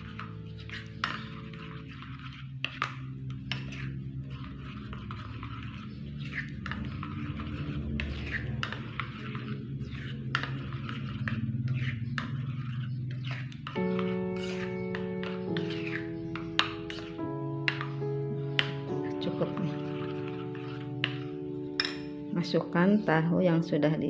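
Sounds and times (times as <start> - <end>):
metal spoon stirring batter in bowl: 0.0 - 23.0.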